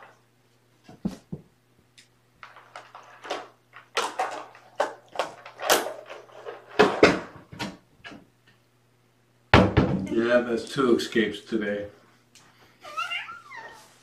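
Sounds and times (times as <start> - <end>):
rustling and knocking: 0.8 - 1.6, 2.4 - 8.3.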